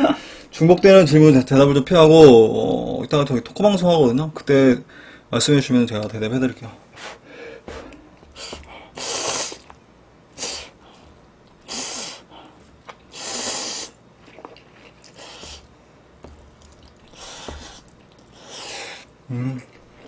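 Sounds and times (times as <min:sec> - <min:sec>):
noodles slurped: 0:07.7 - 0:09.8, 0:11.6 - 0:20.0.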